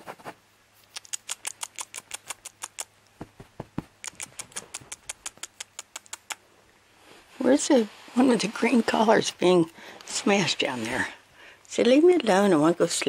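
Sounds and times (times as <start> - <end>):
mouth clicking kissy noises: 0.8 - 3.2, 3.8 - 6.4
dull knocks: 3.2 - 4.0.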